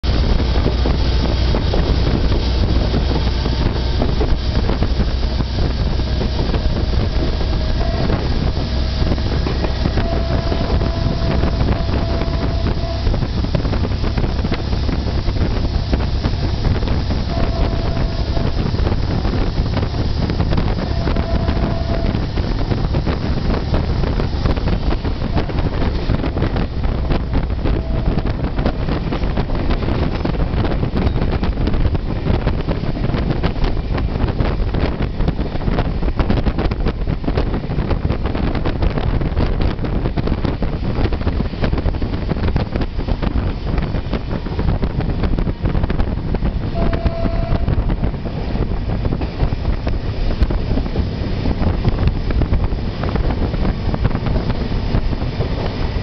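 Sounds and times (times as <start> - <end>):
train rumbling on rails: 0.0 - 56.0
wind buffeting microphone: 0.0 - 56.0
faint whine: 1.6 - 31.4.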